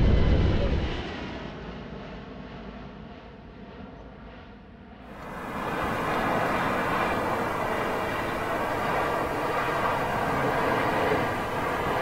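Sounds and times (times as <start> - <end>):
jet engine noise: 0.0 - 12.0
fan whine: 5.1 - 12.0.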